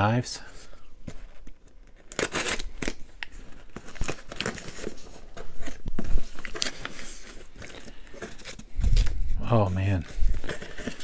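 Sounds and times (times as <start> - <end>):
packing peanuts rustling: 1.3 - 11.0
packing tape slit and torn: 1.4 - 4.9
cardboard scraping: 3.5 - 11.0.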